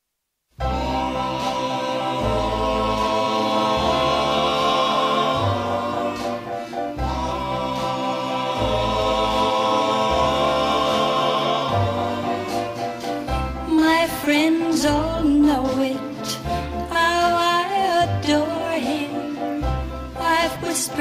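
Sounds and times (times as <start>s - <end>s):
backing chorus holding chords: 0.6s - 15.3s
orchestra: 0.6s - 21.0s.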